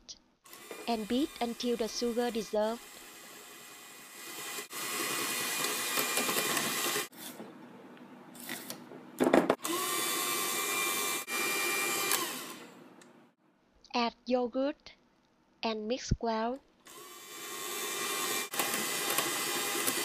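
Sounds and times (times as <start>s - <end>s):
electric hand mixer beating: 0.5s - 7.1s, 9.6s - 12.8s, 16.9s - 20.0s.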